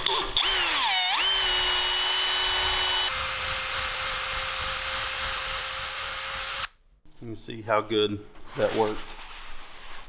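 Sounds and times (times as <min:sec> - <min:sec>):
drill motor whine: 0:00.4 - 0:06.7.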